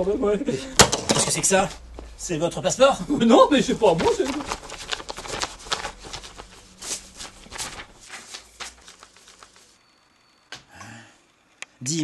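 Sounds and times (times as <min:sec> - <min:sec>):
paper rustling and crinkling: 0:03.5 - 0:09.8.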